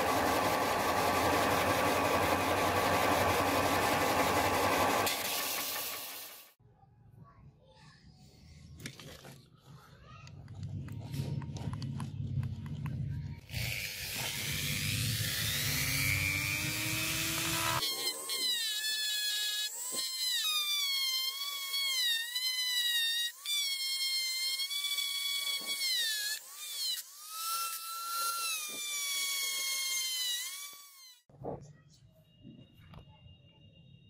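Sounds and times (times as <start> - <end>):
rotary tool whining on metal: 13.4 - 31.3.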